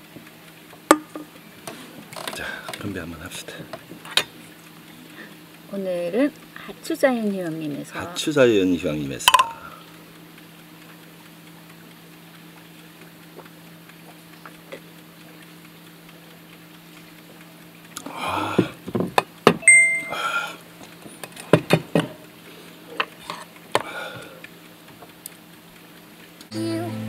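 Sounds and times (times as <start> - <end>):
short high beep: 19.6 - 20.3.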